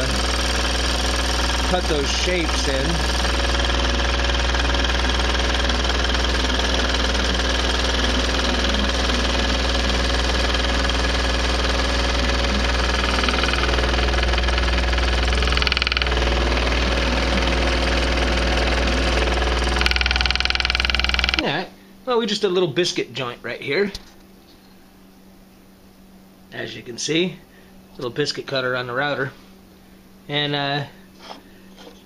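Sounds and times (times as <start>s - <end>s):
scroll saw cutting wood: 0.0s - 21.4s.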